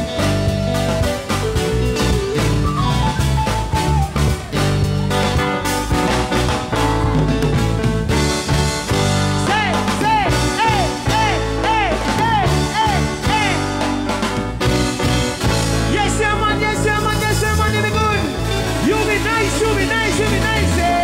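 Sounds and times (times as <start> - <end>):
live band playing: 0.0 - 21.0
man singing: 9.4 - 14.0, 15.8 - 21.0.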